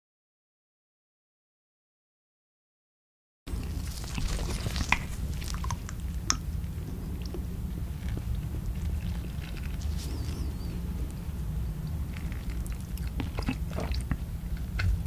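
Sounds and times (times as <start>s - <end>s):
soft squishy sauce squeezing: 3.5s - 15.0s
steady low hum: 3.5s - 15.0s.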